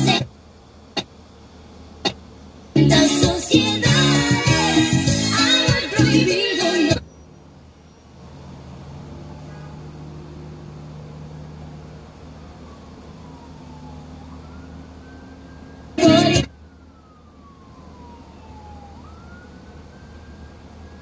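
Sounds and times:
music: 0.0s - 0.2s, 2.8s - 7.0s, 16.0s - 16.5s
truck and car engines humming: 0.0s - 21.0s
distant siren: 2.9s - 21.0s.

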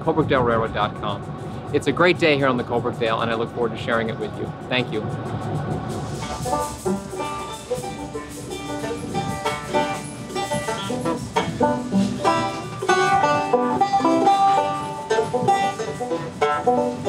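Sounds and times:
bluegrass music: 5.8s - 17.0s.

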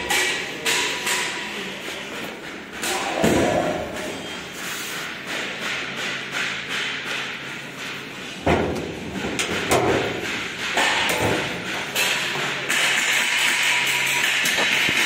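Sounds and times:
thuds and knocks on steel cabinet: 8.4s - 11.7s.

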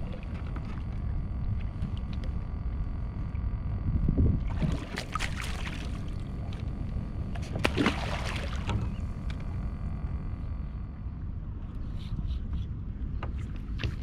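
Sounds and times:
wind rumble on microphone: 0.0s - 14.0s
fish splashing in water: 4.5s - 6.3s, 7.5s - 9.0s.

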